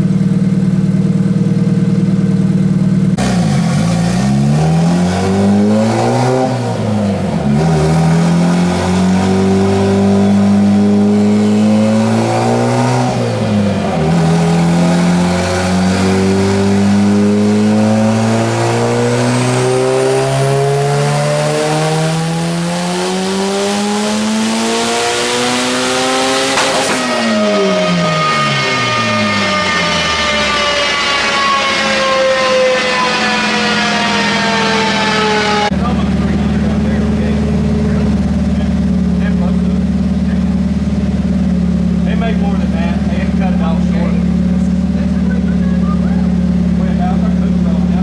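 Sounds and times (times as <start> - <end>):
car engine revving at full throttle: 0.0 - 48.0
turbo whine: 26.4 - 48.0.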